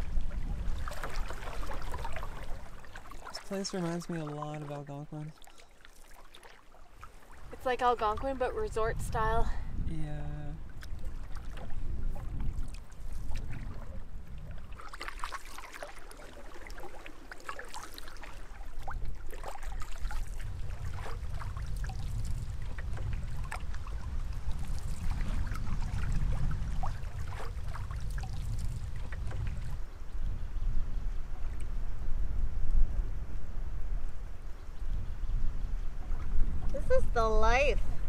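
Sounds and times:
wind rumble on microphone: 0:00.0 - 0:03.6, 0:07.0 - 0:15.6, 0:18.1 - 0:38.0
water splashing against boat hull: 0:00.0 - 0:09.4, 0:10.6 - 0:29.9.

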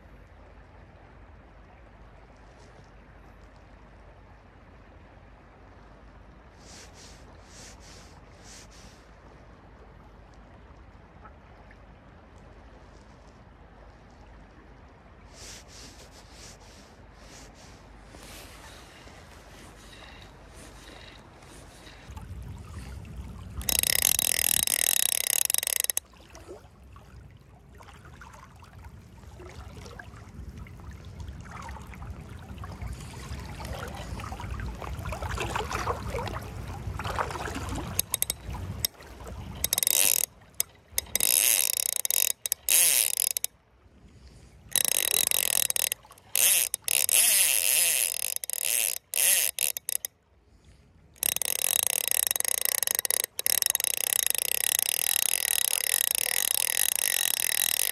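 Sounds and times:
fly reel drag buzzing: 0:15.4 - 0:22.2, 0:22.8 - 0:26.1, 0:37.2 - 0:43.5, 0:44.7 - 0:50.1, 0:51.2 - 0:57.9.

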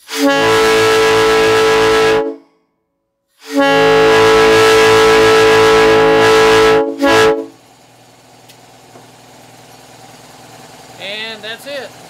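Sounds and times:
train horn chord blasts: 0:00.0 - 0:02.6, 0:03.4 - 0:07.6.

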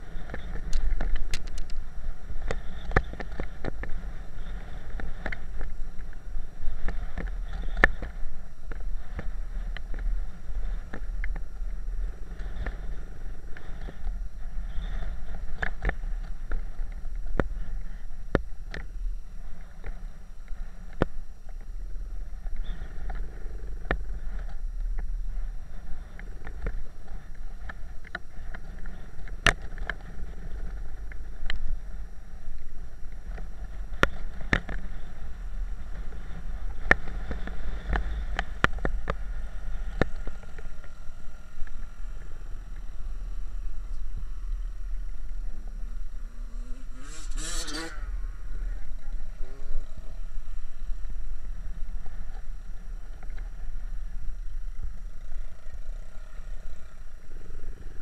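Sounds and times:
motorcycle engine: 0:00.0 - 0:58.0.

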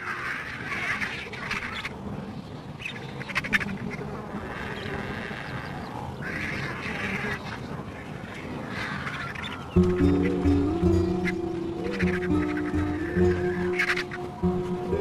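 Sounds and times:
harsh wild animal calls: 0:00.0 - 0:02.0, 0:02.8 - 0:15.0
steady low background: 0:09.8 - 0:15.0.

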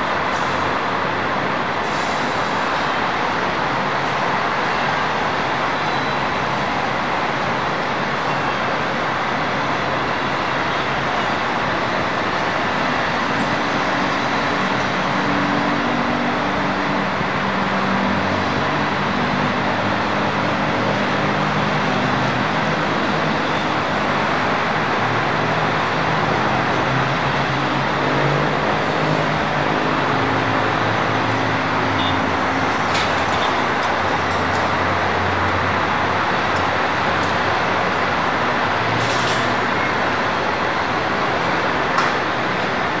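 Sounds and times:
diesel truck engines running: 0:00.0 - 0:43.0.

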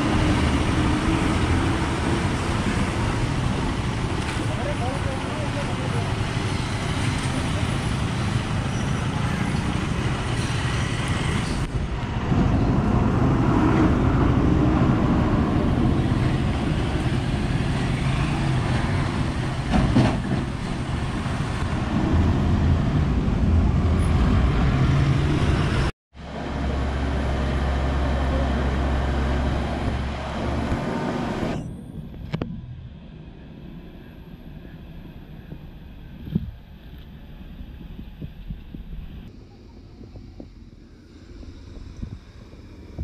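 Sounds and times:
cars and motorcycles passing: 0:00.0 - 0:32.1
heavy lorry diesel engines: 0:00.0 - 0:43.0.

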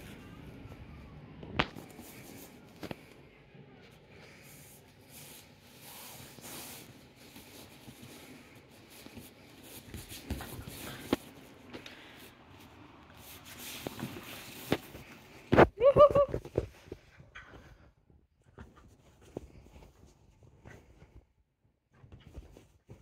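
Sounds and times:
dog rustling on couch: 0:04.4 - 0:15.5, 0:22.0 - 0:23.0.

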